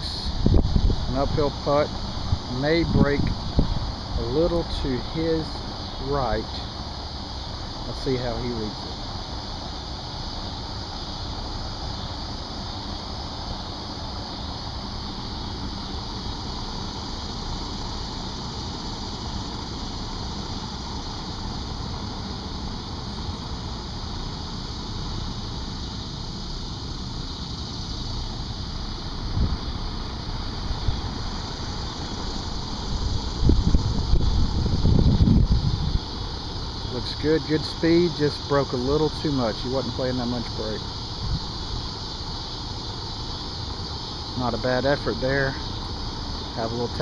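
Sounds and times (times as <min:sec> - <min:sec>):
wind buffeting the microphone: 0:00.0 - 0:05.9, 0:29.2 - 0:36.9, 0:41.1 - 0:41.7.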